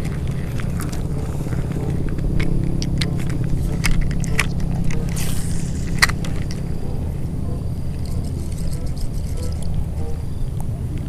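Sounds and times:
low rumble: 0:00.0 - 0:11.0
brief hiss: 0:05.2 - 0:06.0.

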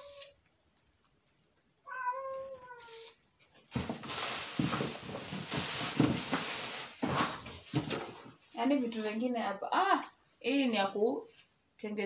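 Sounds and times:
cat meowing: 0:01.8 - 0:03.2
plastic wrap crinkling: 0:03.7 - 0:09.3.

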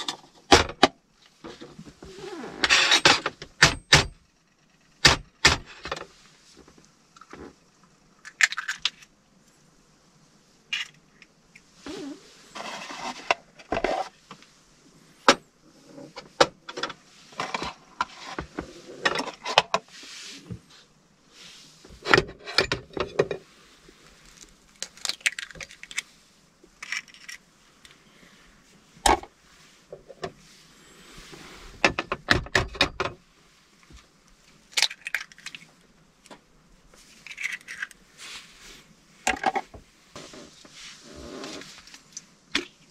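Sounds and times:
eggshells cracking: 0:08.2 - 0:09.1, 0:24.2 - 0:26.0, 0:34.7 - 0:35.7, 0:37.2 - 0:38.0
rustling: 0:10.3 - 0:32.0, 0:33.3 - 0:42.9.

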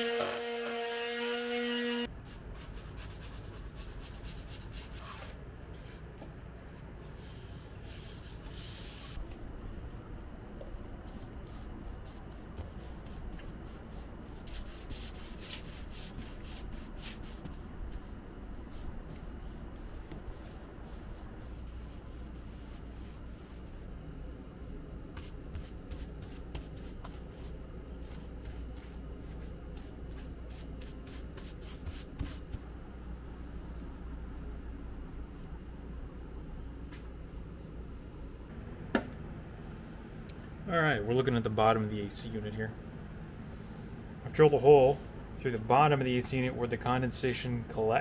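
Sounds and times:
steady low hum: 0:00.2 - 0:48.0
paintbrush swishing on wood: 0:11.1 - 0:23.9.

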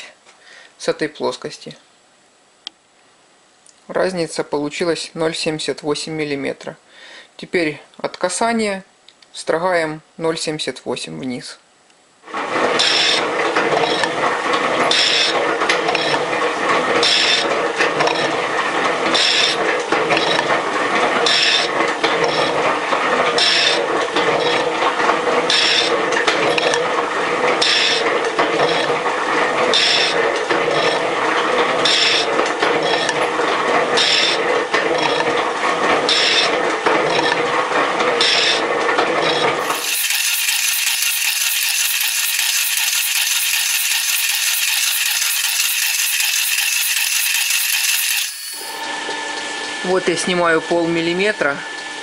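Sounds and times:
metal shaper scraping strokes: 0:39.6 - 0:48.8
thin mechanical noise: 0:39.6 - 0:48.8.

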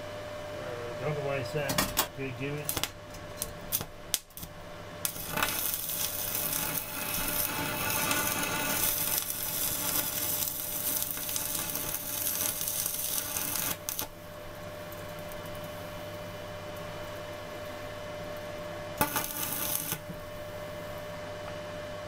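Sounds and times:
steady hum: 0:00.0 - 0:22.0
welding arc crackling: 0:02.4 - 0:20.5
welding rod scratching to strike: 0:05.1 - 0:14.1, 0:19.0 - 0:20.1.

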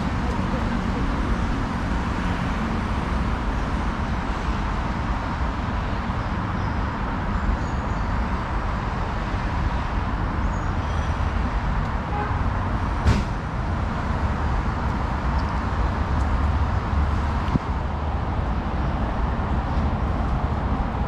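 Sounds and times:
low traffic rumble: 0:00.0 - 0:21.0
sharp knock: 0:13.0 - 0:13.4.

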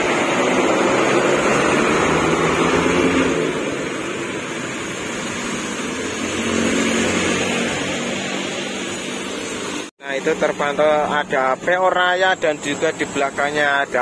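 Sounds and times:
bus engine running: 0:00.0 - 0:09.9
tyres hissing on wet road: 0:00.0 - 0:14.0
vehicle approaching: 0:00.0 - 0:14.0.

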